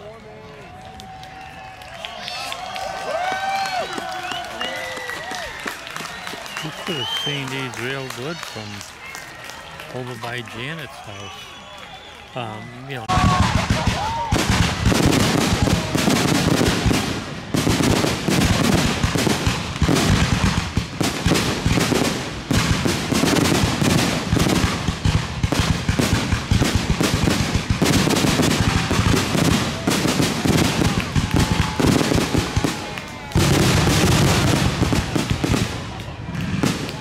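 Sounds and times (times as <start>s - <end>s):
fireworks booming and crackling: 6.5s - 8.8s, 12.8s - 37.0s.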